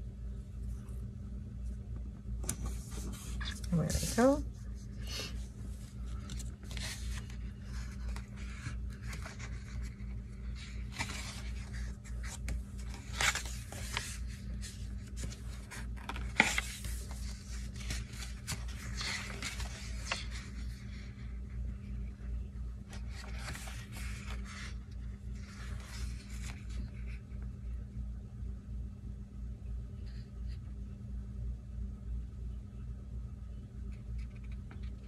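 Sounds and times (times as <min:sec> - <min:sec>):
steady low hum: 0:00.0 - 0:35.0
paper pages rustling and sliding: 0:02.4 - 0:04.2, 0:05.6 - 0:21.8, 0:22.8 - 0:27.4.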